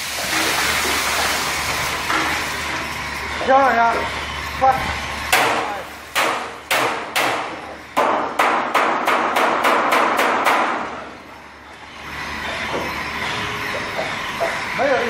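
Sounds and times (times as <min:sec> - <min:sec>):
steady machine noise: 0:00.0 - 0:15.0
metallic bangs on steel: 0:05.3 - 0:10.9.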